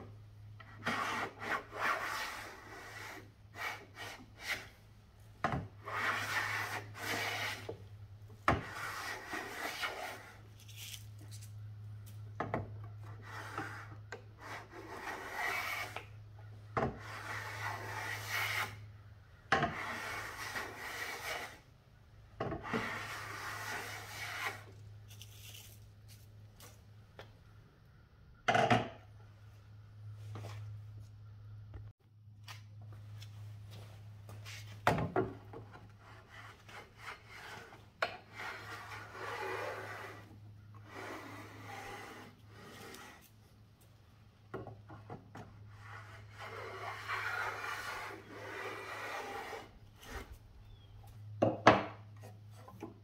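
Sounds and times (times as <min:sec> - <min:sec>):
hand plane shaving wood: 0:00.7 - 0:04.7, 0:05.8 - 0:07.8, 0:08.6 - 0:10.4, 0:13.1 - 0:16.1, 0:19.7 - 0:21.6, 0:22.7 - 0:24.7, 0:36.0 - 0:43.3, 0:45.7 - 0:50.3.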